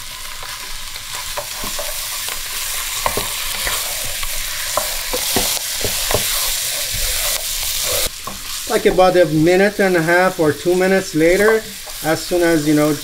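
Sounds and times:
meat sizzling in hot oil: 0:00.0 - 0:13.0
wooden spoon knocking on pot: 0:04.8 - 0:06.4, 0:11.3 - 0:12.0.

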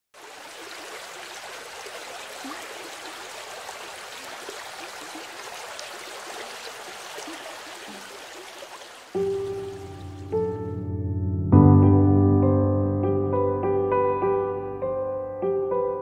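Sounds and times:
running water: 0:00.2 - 0:10.8.

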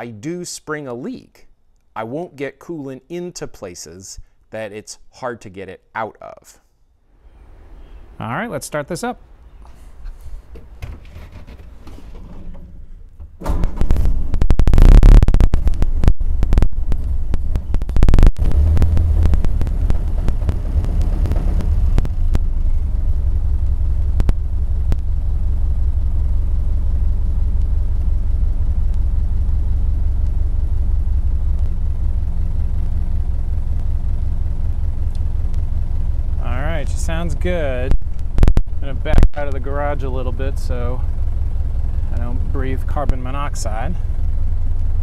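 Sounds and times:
car engine starting and idling: 0:09.0 - 0:45.0
crackle of static: 0:13.8 - 0:45.0.

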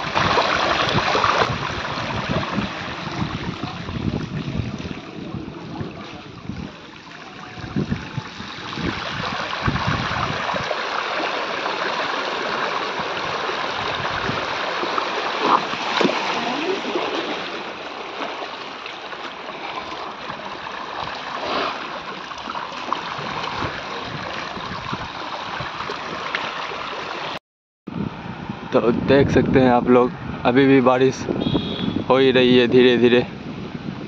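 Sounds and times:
floodwater sloshing and splashing: 0:00.0 - 0:27.4.

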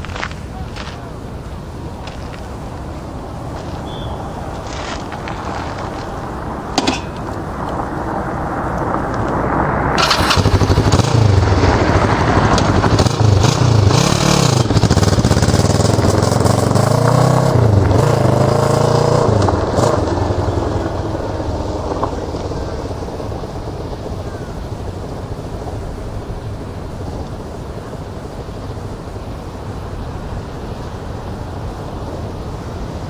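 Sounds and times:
motorcycle engine idling and revving: 0:03.4 - 0:28.9.

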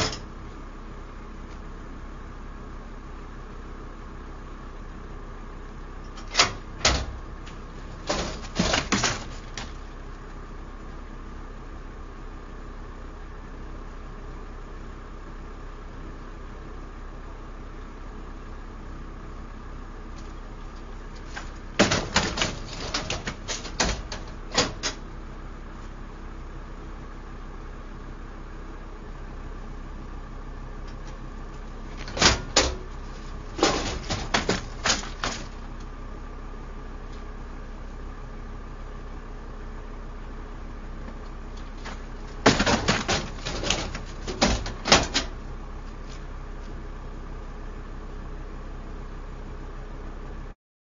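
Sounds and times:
low engine hum: 0:00.0 - 0:50.6
gurney rattling and clacking: 0:32.0 - 0:35.6.

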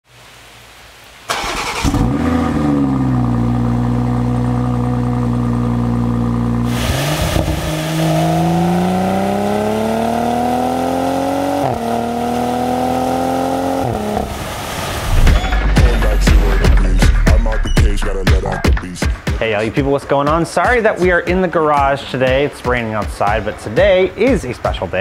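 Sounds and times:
engine accelerating: 0:01.3 - 0:18.6
car engine starting and idling: 0:01.3 - 0:18.7.

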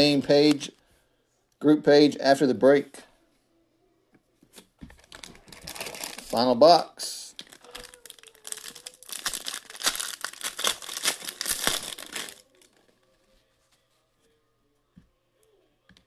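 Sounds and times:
foil wrapper tearing and crinkling: 0:05.0 - 0:06.5, 0:07.3 - 0:12.8.

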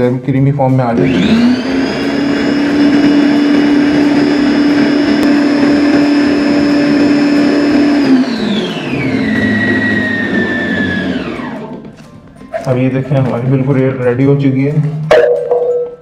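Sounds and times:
food processor motor whining: 0:01.0 - 0:12.0.

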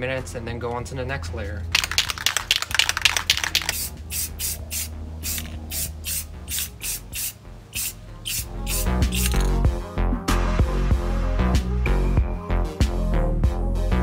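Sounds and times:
aerosol can rattling: 0:01.7 - 0:09.5
spray can hissing bursts: 0:01.8 - 0:09.4.

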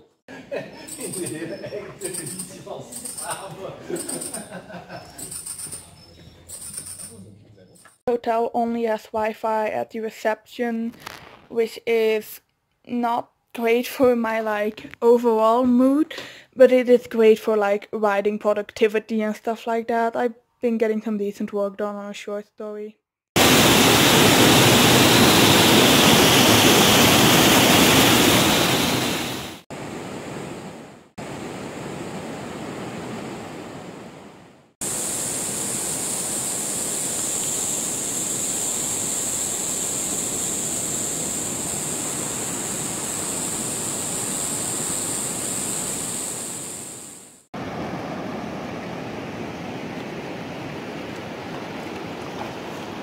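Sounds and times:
ocean surf: 0:23.4 - 0:53.0.

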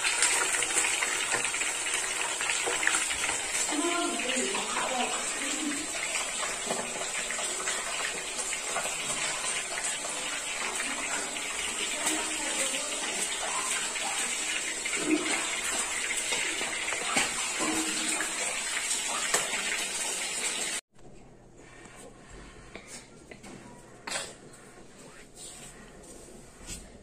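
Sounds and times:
fish sizzling in hot oil: 0:00.0 - 0:20.8.

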